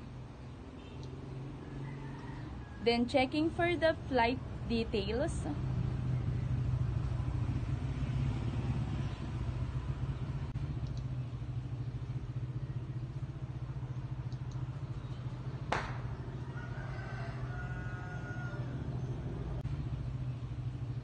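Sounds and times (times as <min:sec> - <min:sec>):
low mechanical rumble: 0:02.4 - 0:21.0
sharp click: 0:10.8 - 0:11.1.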